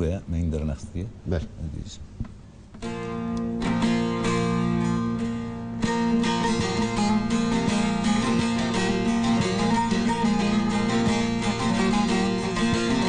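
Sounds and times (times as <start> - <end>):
plucked saz melody: 2.8 - 13.0.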